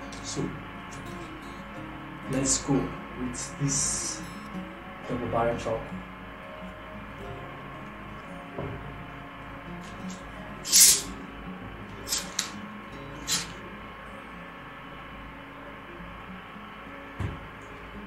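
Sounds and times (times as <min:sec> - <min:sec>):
carbonation hissing: 0:09.9 - 0:11.2, 0:12.0 - 0:12.6, 0:13.2 - 0:13.6
bottle cap twisting open: 0:12.1 - 0:12.5.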